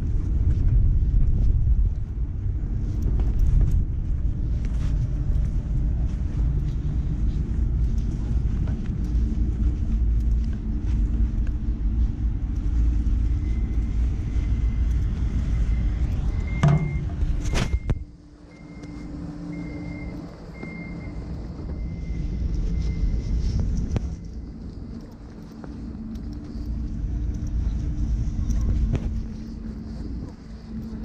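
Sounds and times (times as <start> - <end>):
microphone handling and wind noise: 0.0 - 18.1, 20.7 - 31.0
electric train humming: 0.0 - 31.0
faint high repeating beep: 13.3 - 23.3.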